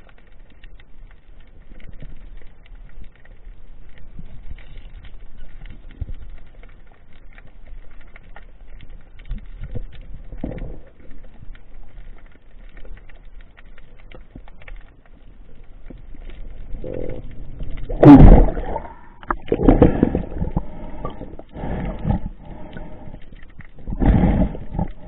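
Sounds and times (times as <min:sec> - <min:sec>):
crackle of small underwater clicks: 0:00.0 - 0:25.0
low water rumble: 0:00.0 - 0:25.0
water rushing burst: 0:17.8 - 0:23.1.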